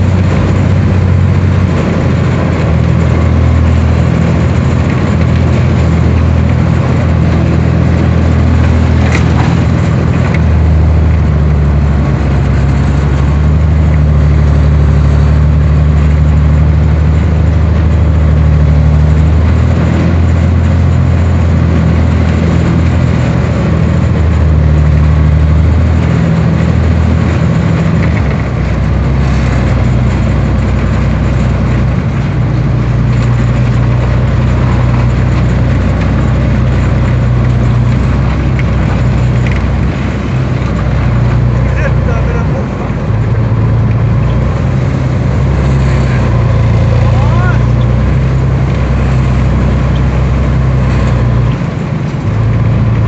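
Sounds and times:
diesel engine running loudly: 0:00.0 - 0:53.0
tracks rumbling and rattling: 0:00.0 - 0:53.0.

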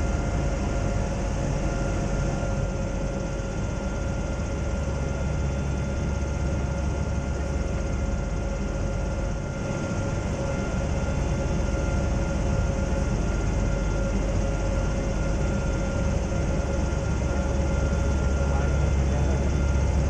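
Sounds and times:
airship engines and propellers droning: 0:00.0 - 0:20.0.

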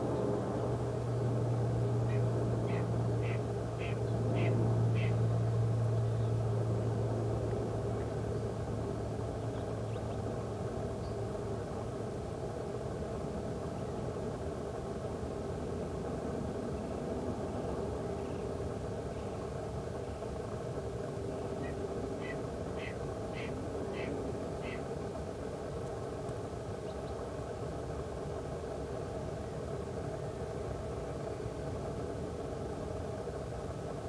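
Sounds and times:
engine drone: 0:00.0 - 0:34.0
faint steady hum: 0:00.0 - 0:34.0.

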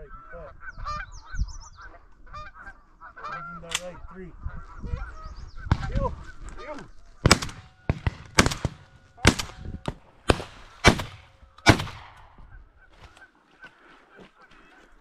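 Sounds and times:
geese honking faintly: 0:00.0 - 0:08.0, 0:12.3 - 0:15.0
shotgun shots echoing: 0:07.2 - 0:12.4.

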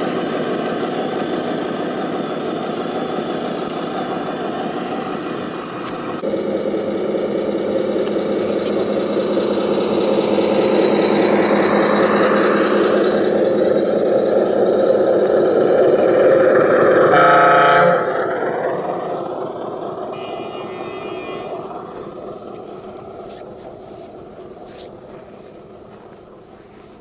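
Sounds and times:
simulated diesel engine running: 0:00.0 - 0:27.0
truck horn blast: 0:16.9 - 0:18.2, 0:20.1 - 0:22.3.

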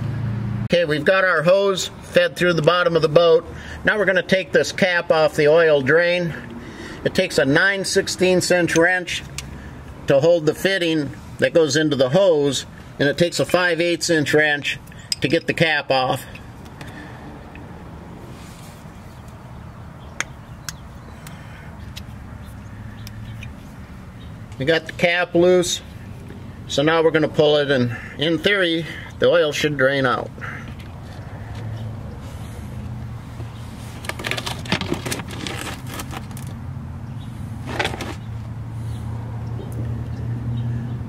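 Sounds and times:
wrenches clinking on metal fitting: 0:14.9 - 0:16.5.

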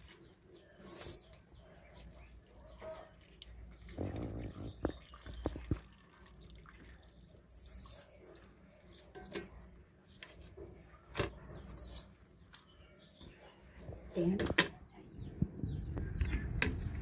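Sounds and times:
high bird chirps: 0:00.7 - 0:01.4, 0:07.5 - 0:08.1, 0:11.5 - 0:12.2.

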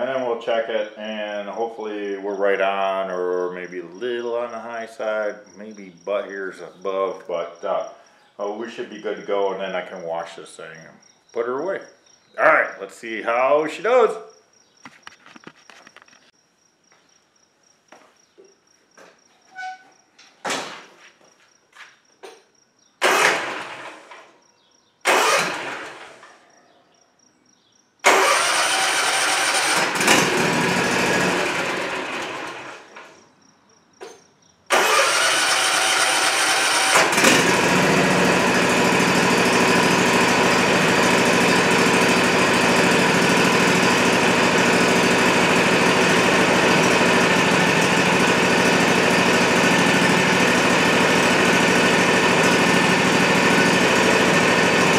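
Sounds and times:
mower engine starting and running: 0:23.0 - 0:24.3, 0:25.0 - 0:26.3, 0:28.0 - 0:33.2, 0:34.7 - 0:54.9.

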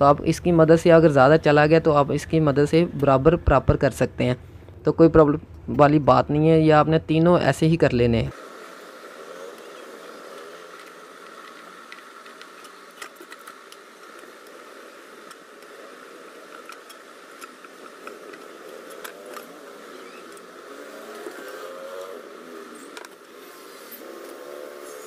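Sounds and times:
steady background hum: 0:00.0 - 0:25.0.

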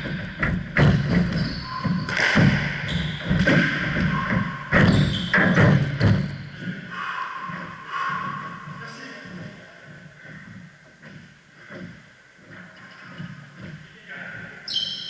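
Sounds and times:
shoes squeaking: 0:00.0 - 0:15.0
squash ball smacking: 0:02.0 - 0:06.2.

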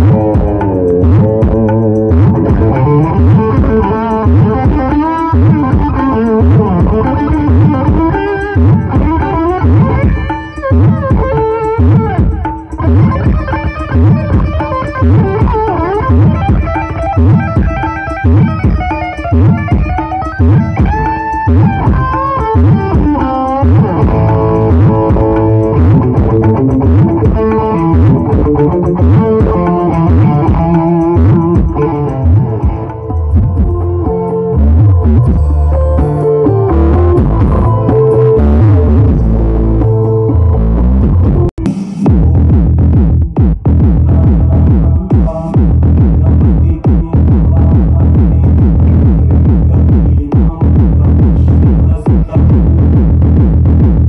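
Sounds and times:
deep bass thump: 0:00.0 - 0:04.8, 0:34.7 - 0:36.1, 0:36.9 - 0:37.9, 0:41.0 - 0:54.0
plucked-string melody: 0:00.0 - 0:41.5
deep sliding bass notes: 0:00.0 - 0:54.0
loud music through outdoor speakers: 0:00.0 - 0:54.0.

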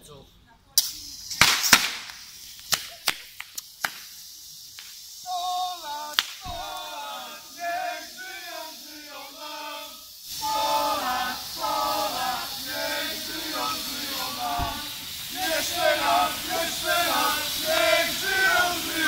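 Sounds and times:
hiss of burning flares: 0:00.7 - 0:19.0
sharp bangs: 0:00.8 - 0:03.2
group singing a chant: 0:05.3 - 0:19.0.

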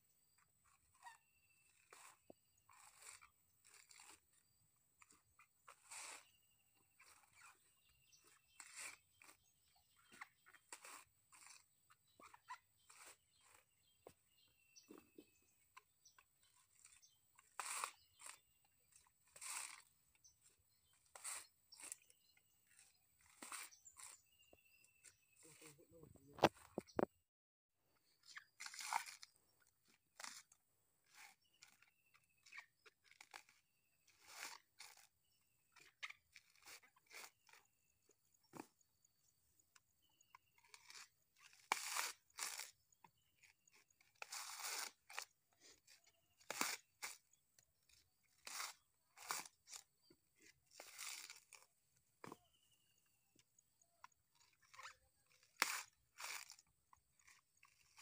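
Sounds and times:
coconut husk crunching and ripping: 0:01.0 - 0:06.3, 0:08.2 - 0:11.6, 0:14.8 - 0:24.5, 0:28.3 - 0:35.2, 0:40.6 - 0:42.8, 0:43.4 - 0:47.3, 0:48.3 - 0:52.6, 0:54.4 - 0:58.0.

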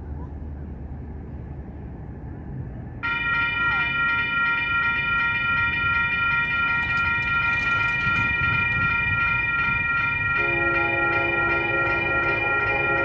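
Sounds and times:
crossing bell ringing: 0:03.0 - 0:13.0.

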